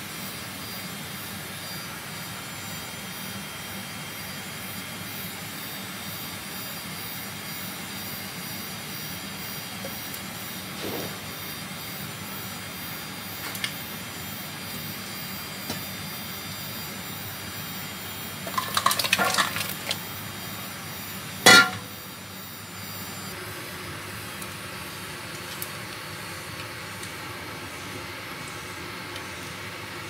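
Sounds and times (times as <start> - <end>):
metal bowl clinking: 18.5 - 20.0, 21.5 - 22.0.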